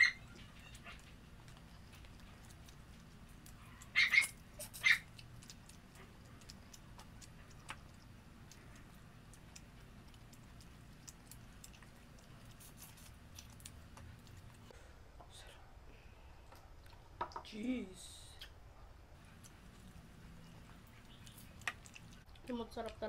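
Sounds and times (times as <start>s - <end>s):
dog crying: 0.0s - 1.0s, 3.6s - 5.1s
quiet chewing: 0.0s - 17.4s, 18.4s - 23.0s.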